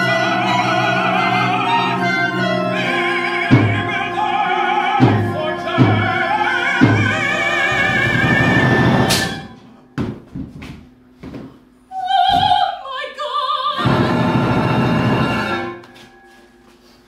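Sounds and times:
opera voices singing with vibrato: 0.0s - 9.6s, 11.9s - 15.8s
small orchestra playing: 0.0s - 9.9s, 13.8s - 16.3s.

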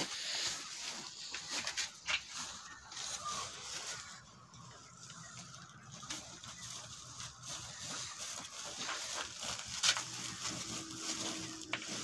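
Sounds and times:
grain shifting: 0.3s - 12.0s
plastic sacks rustling: 5.9s - 12.0s.

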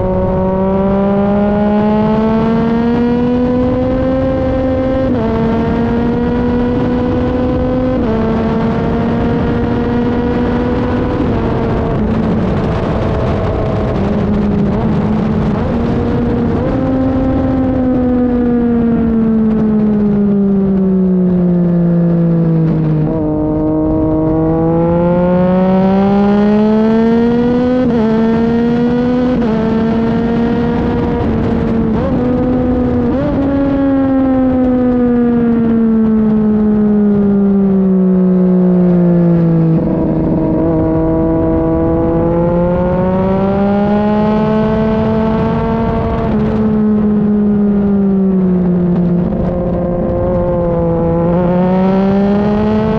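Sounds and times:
motorcycle engine at racing speed: 0.0s - 52.9s.

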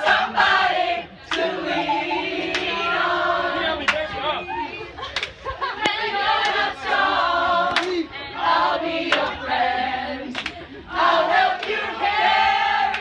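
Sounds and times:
group singing in unison: 0.0s - 4.0s, 5.8s - 13.0s
sharp claps: 10.4s - 10.6s.

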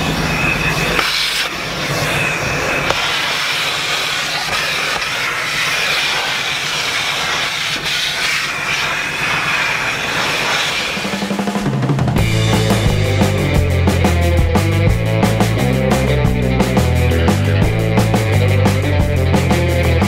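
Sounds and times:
vacuum nozzle sucking air: 0.0s - 11.7s.

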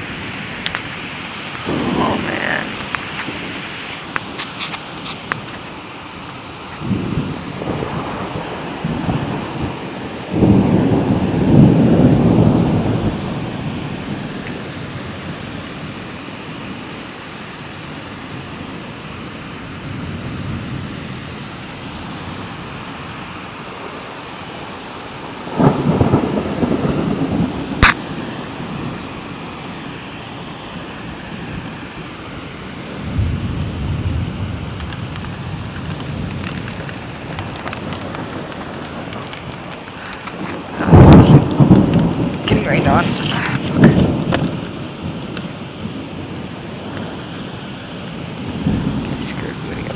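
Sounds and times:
thunder rumbling: 0.0s - 16.9s, 18.0s - 49.9s
sharp thunder crack: 1.6s - 3.7s, 6.8s - 14.3s, 25.5s - 29.1s, 37.2s - 44.6s.

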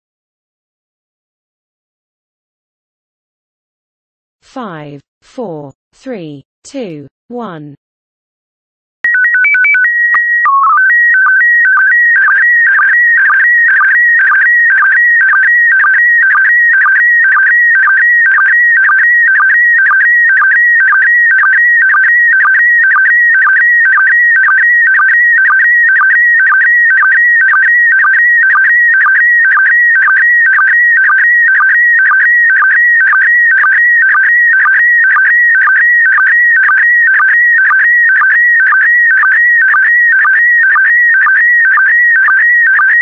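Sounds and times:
alternating electronic beeps: 9.0s - 43.0s.

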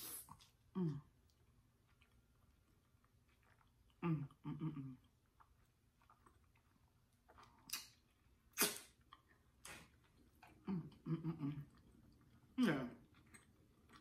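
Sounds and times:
wet mouth smacks: 7.6s - 9.0s.

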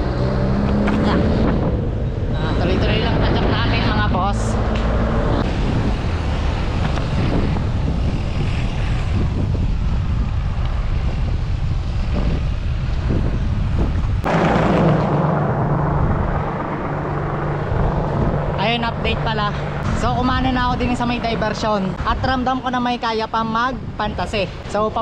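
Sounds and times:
wind rushing over microphone: 0.0s - 25.0s
steady low hum: 13.8s - 22.0s.

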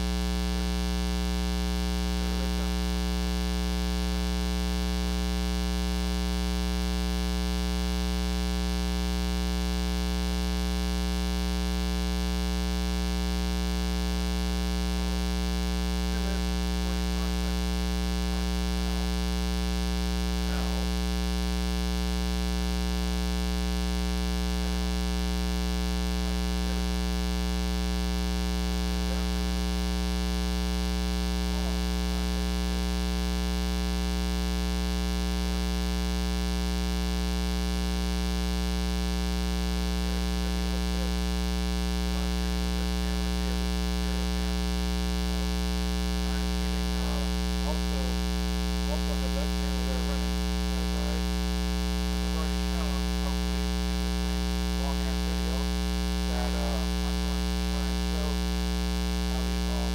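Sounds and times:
buzzing mains hum: 0.0s - 59.9s.

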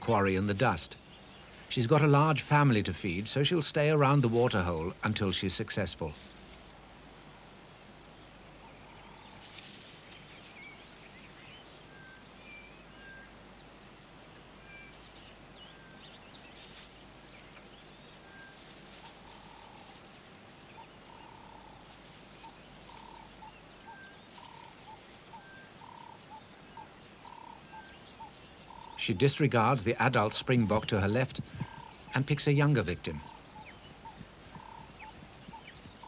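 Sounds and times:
low steady hiss: 0.0s - 36.0s
faint animal chirps: 20.7s - 29.0s, 33.2s - 36.0s.

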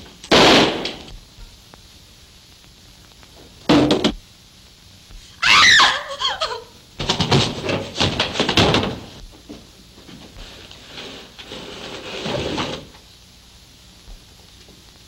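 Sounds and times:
body crashing against furniture: 0.3s - 1.0s, 7.0s - 9.2s
gunshot: 0.3s - 1.1s
man crying out in pain: 5.4s - 6.7s.

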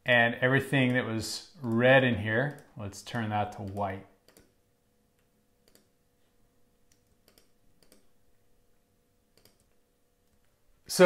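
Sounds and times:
faint steady hum: 0.0s - 11.0s
computer mouse clicks: 3.5s - 4.6s, 5.6s - 5.9s, 6.9s - 8.1s, 9.4s - 10.5s.

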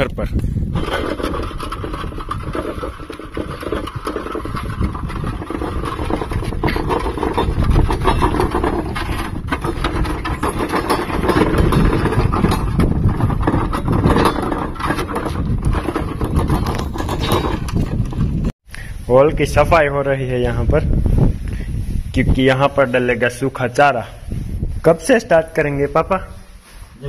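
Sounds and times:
cart rattling and knocking: 0.7s - 18.5s
hooves clopping: 0.8s - 18.5s.

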